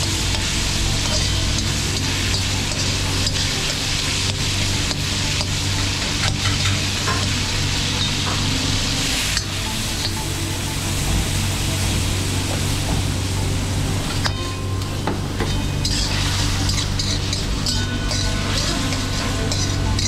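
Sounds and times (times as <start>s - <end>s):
chicken sizzling in oil: 0.0s - 20.0s
spatula scraping a wok: 0.2s - 10.2s, 14.0s - 20.0s.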